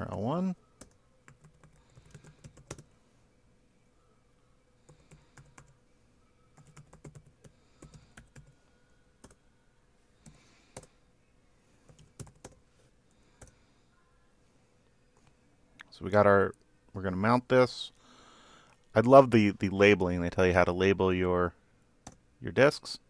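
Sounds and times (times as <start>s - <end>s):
computer keyboard typing: 0.8s - 2.9s, 4.9s - 5.8s, 6.6s - 8.6s, 10.2s - 10.9s, 11.9s - 12.6s.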